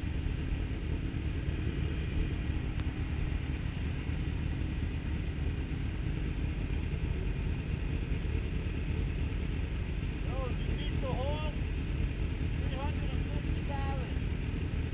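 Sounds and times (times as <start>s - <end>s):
motorcycle engines idling: 0.0s - 14.9s.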